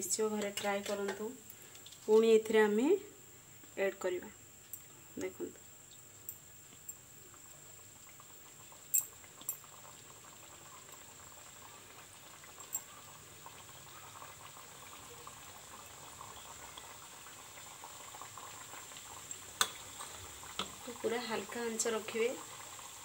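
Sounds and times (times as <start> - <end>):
food sizzling in hot oil: 0.0 - 23.0.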